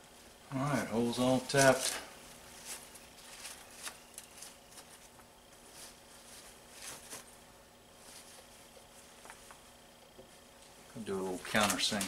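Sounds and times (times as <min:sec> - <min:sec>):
paper towel swishing on metal: 0:01.5 - 0:09.4.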